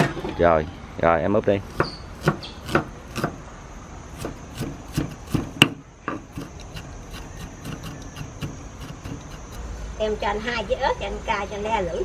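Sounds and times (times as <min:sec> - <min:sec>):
knife chopping on wooden board: 0:01.7 - 0:03.4, 0:04.1 - 0:09.6.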